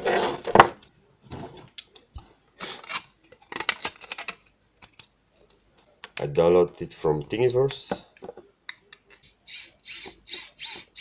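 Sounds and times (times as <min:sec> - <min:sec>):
hands rustling plastic parts: 0:02.6 - 0:06.8.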